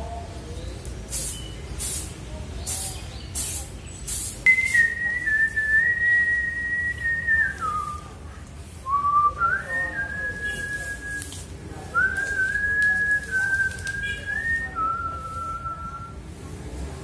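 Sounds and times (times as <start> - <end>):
person whistling: 4.5 - 8.0.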